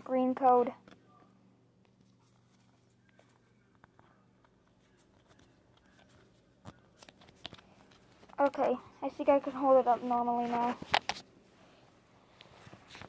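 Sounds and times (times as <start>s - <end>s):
faint room hum: 0.0s - 13.0s
trading cards clicking and rustling: 0.5s - 9.4s, 10.4s - 11.3s.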